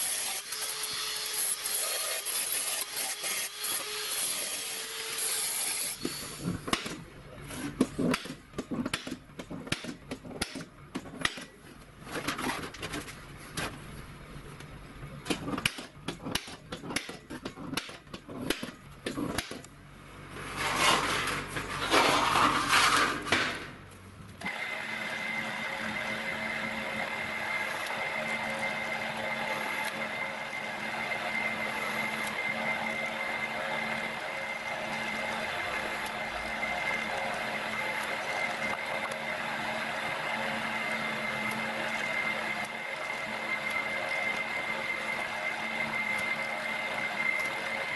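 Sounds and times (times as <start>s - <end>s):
metal sheet scraping: 20.4s - 23.8s.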